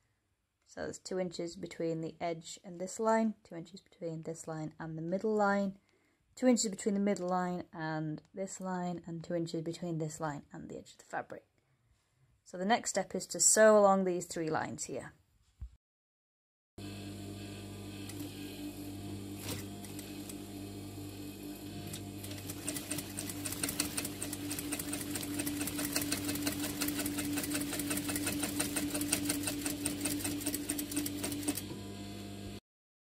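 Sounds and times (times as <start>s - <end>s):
sewing machine stitching: 18.0s - 31.8s.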